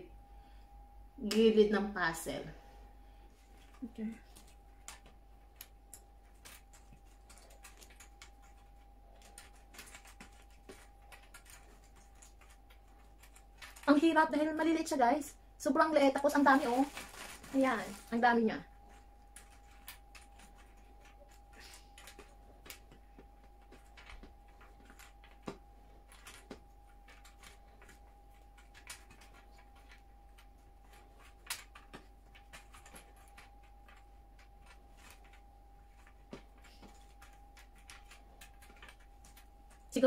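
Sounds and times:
faint steady tone: 0.0s - 13.9s, 17.0s - 40.0s.

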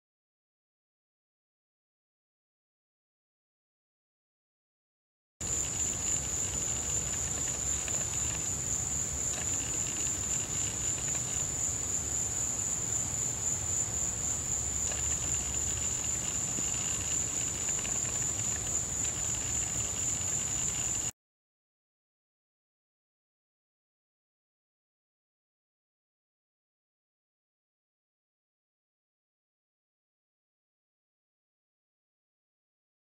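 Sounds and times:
high-pitched insect trilling: 5.4s - 21.1s
lower insect chorus: 5.4s - 21.1s.

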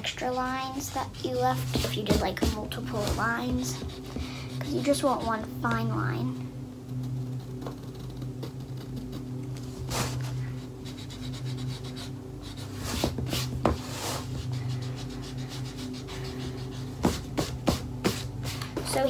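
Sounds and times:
pencil and eraser scratching: 0.0s - 5.5s, 9.9s - 19.0s
steady low hum: 0.0s - 19.0s.

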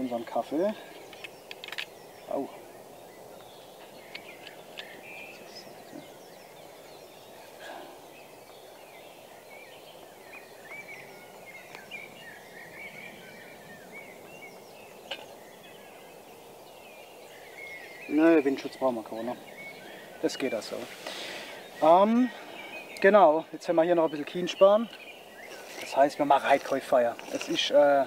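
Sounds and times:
small birds chirping: 0.0s - 28.0s
camping pot clicks and taps: 1.1s - 2.0s.

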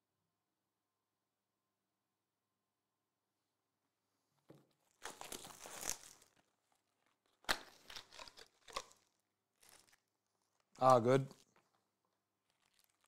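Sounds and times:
sharp plastic crackles: 4.8s - 11.8s, 12.4s - 13.0s
plastic wrap crinkling and tearing: 4.8s - 13.0s.

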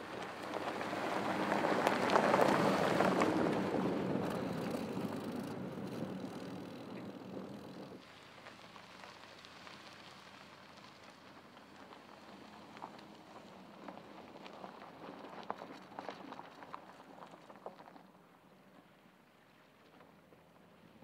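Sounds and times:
low engine sound: 0.0s - 16.1s
tyres crunching over gravel: 0.0s - 18.2s.

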